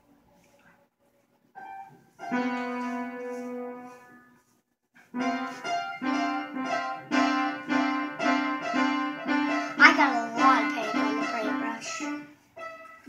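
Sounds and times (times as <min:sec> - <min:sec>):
piano music: 0:01.6 - 0:04.5, 0:05.1 - 0:13.0.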